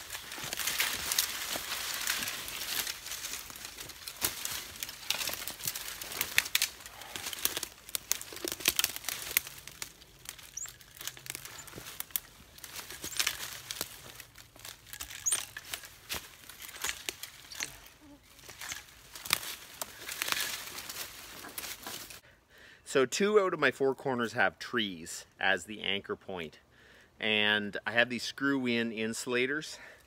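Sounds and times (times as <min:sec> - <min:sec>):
leaves and brush rustling: 0:00.0 - 0:22.2
loppers cutting branches: 0:00.0 - 0:22.2
twigs snapping: 0:00.0 - 0:22.2.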